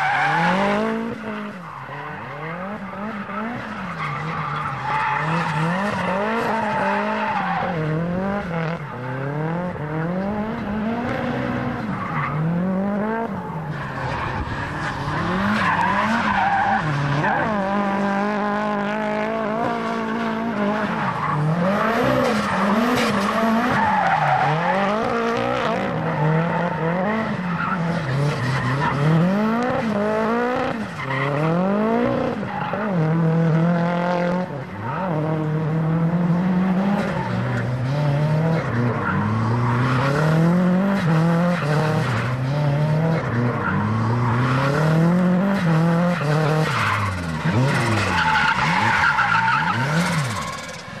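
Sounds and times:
tyres squealing on asphalt: 0.0 - 9.2, 11.3 - 12.6, 13.3 - 18.1, 20.0 - 30.0, 43.2 - 51.0
car engine revving: 0.0 - 51.0.

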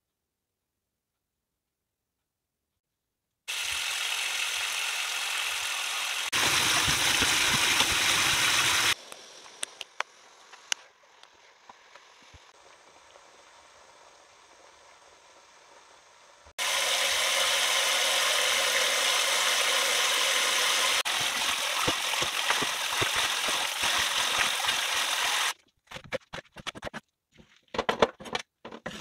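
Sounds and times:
tap water running into bowl: 6.3 - 9.0, 16.6 - 25.5.

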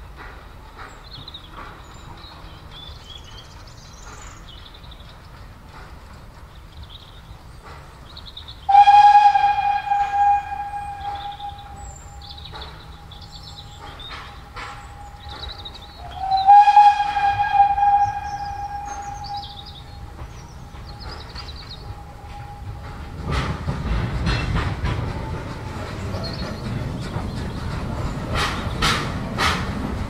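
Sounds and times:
steam whistle blasts: 8.7 - 12.3, 15.1 - 20.2.

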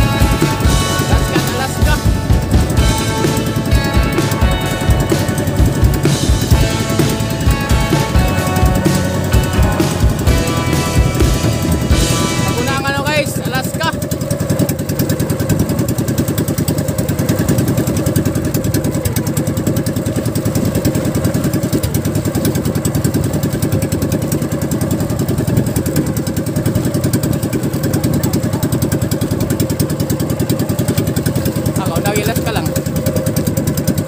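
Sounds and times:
small boat engine running: 0.0 - 34.0.

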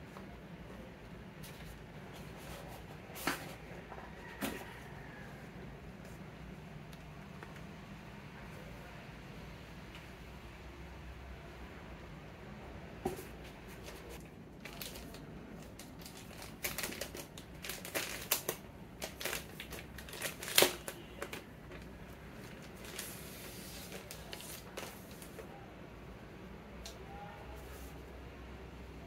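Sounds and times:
plastic wrapping crinkling: 14.2 - 25.5
sharp plastic crackle: 14.2 - 25.5.

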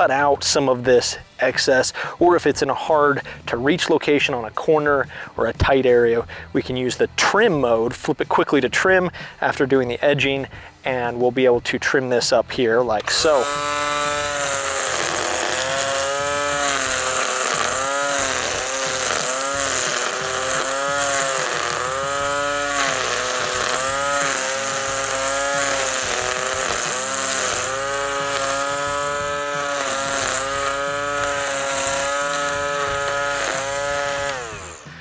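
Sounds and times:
electric string trimmer cutting grass: 0.0 - 0.4, 12.9 - 35.0.

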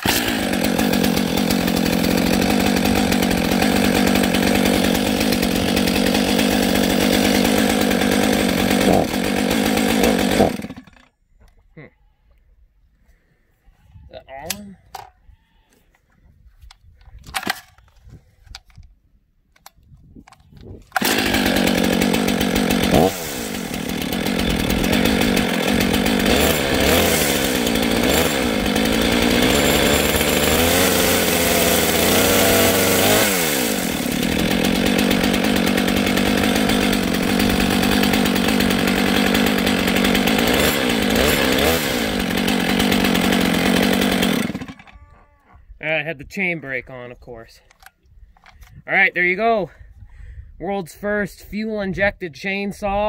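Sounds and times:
chainsaw revving: 0.0 - 11.1, 21.0 - 45.1.

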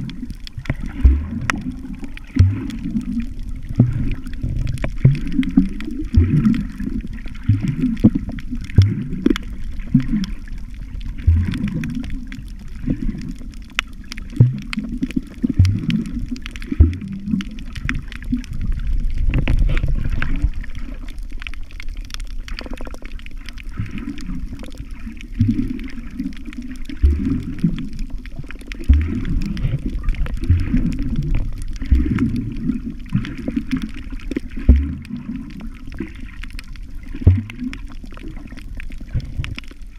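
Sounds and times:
muffled underwater water sloshing: 0.0 - 39.9
low underwater thuds: 0.6 - 10.1, 11.0 - 12.2, 14.2 - 20.5, 27.0 - 27.8, 28.8 - 32.6, 34.6 - 35.6, 37.1 - 37.8.

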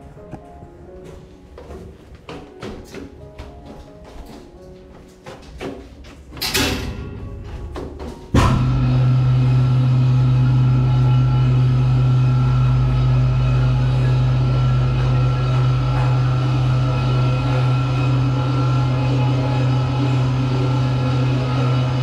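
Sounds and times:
music: 0.0 - 22.0
lift motor humming: 6.4 - 22.0.

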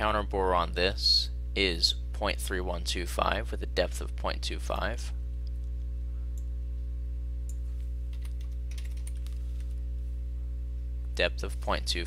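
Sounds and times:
steady low hum: 0.0 - 12.0
computer keyboard keystrokes: 7.5 - 9.7.

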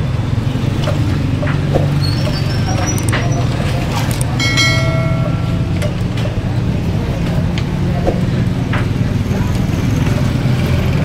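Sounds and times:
low mechanical drone: 0.0 - 11.0
short pitched ringing tone: 4.4 - 6.4.

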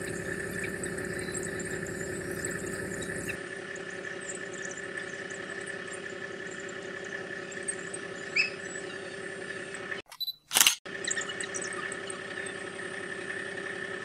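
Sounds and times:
vehicle engine idling: 0.0 - 3.4
sharp click: 10.1 - 10.8.

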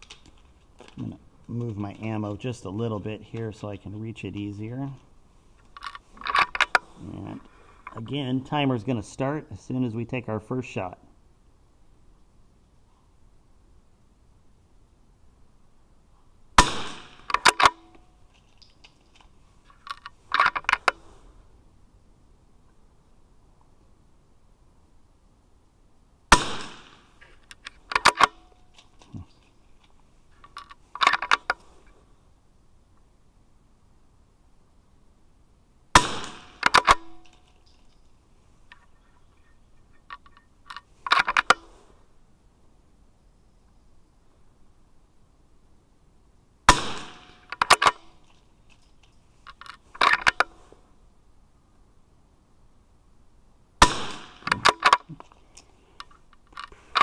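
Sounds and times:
metallic clicks of rifle action: 0.0 - 2.2, 4.4 - 8.1, 16.6 - 21.2, 26.6 - 32.0, 36.0 - 41.8, 47.0 - 50.7, 54.1 - 57.0
rifle shot with echo: 16.6 - 17.7, 26.3 - 27.2, 36.0 - 37.3, 46.7 - 48.0, 53.8 - 54.8
rifle bolt clicking: 17.2 - 18.0, 27.5 - 28.9, 36.6 - 37.8.

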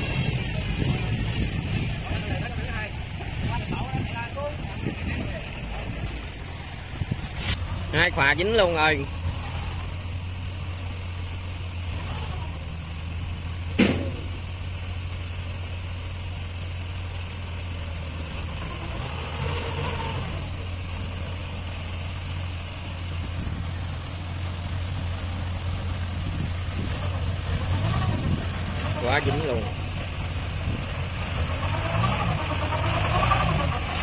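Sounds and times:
diesel engine humming: 0.0 - 34.0
sharp knock: 13.8 - 14.4.

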